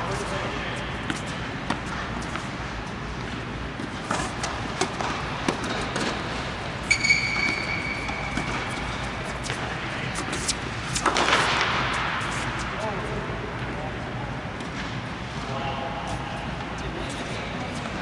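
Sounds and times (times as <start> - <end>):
tennis ball bouncing: 1.0 - 12.5
tennis racket strikes: 3.8 - 12.6
high steady squeal: 6.8 - 9.1.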